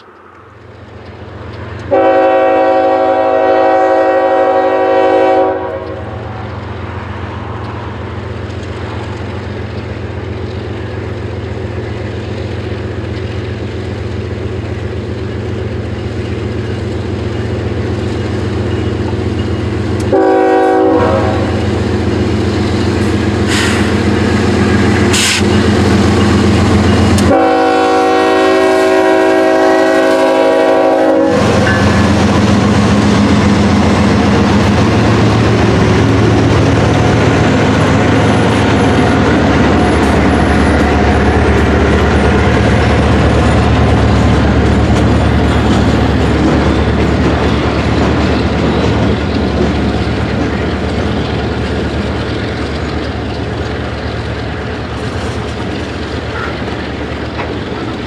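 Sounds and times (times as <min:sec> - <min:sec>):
diesel locomotive engine drone: 0:00.0 - 0:58.0
train rolling: 0:00.0 - 0:58.0
locomotive air horn blasts: 0:01.9 - 0:06.3, 0:20.0 - 0:21.6, 0:27.2 - 0:32.1.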